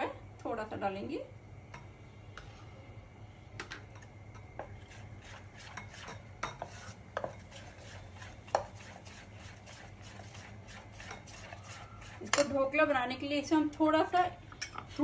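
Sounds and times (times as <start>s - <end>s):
spoon stirring thick batter: 4.4s - 12.9s
spoon clinking against steel pot: 14.5s - 14.9s.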